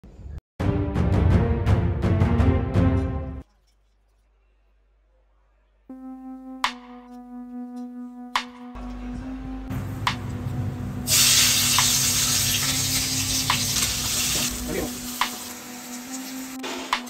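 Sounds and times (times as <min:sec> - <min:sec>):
food sizzling in hot oil: 0:11.1 - 0:16.6.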